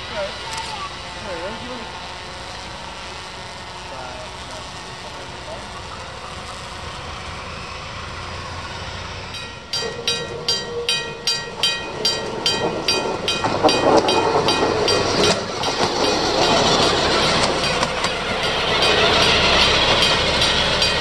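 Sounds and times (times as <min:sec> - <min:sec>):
diesel railcar approaching: 0:00.0 - 0:21.0
bell ringing: 0:09.4 - 0:21.0.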